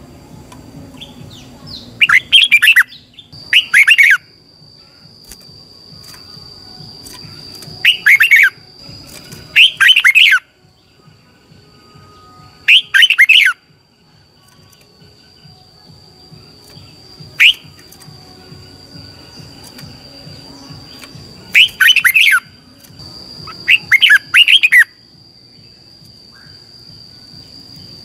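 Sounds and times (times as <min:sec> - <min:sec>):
bird singing short phrases: 0:07.0 - 0:08.6, 0:16.6 - 0:18.1, 0:19.3 - 0:22.6, 0:23.4 - 0:24.9.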